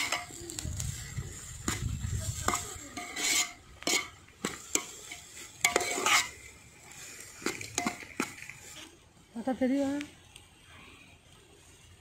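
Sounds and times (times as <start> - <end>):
onions sizzling: 0.0 - 10.1
metal spoon scraping a pot: 2.4 - 6.6.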